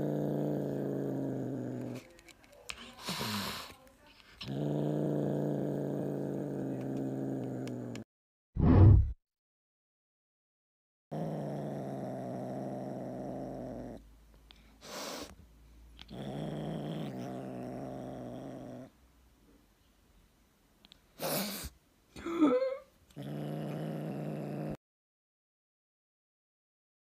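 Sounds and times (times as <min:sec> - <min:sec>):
kitten growling: 0:00.0 - 0:02.2, 0:04.3 - 0:08.1, 0:11.1 - 0:14.0, 0:16.0 - 0:18.9, 0:23.1 - 0:24.8
kitten hissing: 0:14.8 - 0:15.3, 0:21.2 - 0:21.8.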